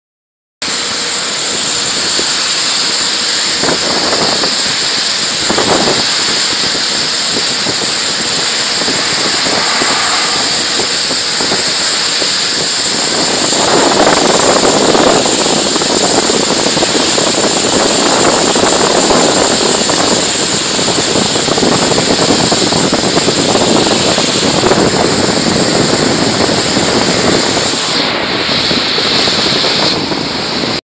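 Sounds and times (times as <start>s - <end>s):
spray gun hissing: 0.6s - 30.8s.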